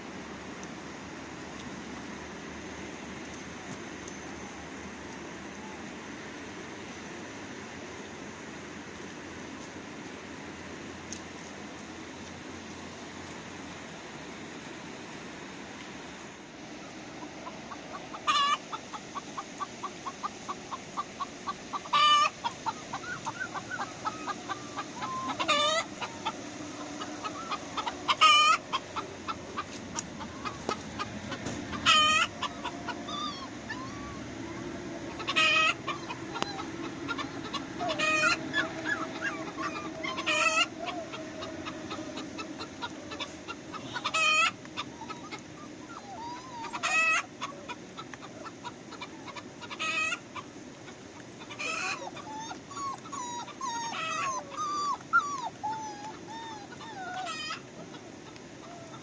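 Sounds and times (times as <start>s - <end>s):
chicken high call: 17.2s - 59.0s
chickens clucking: 17.2s - 59.0s.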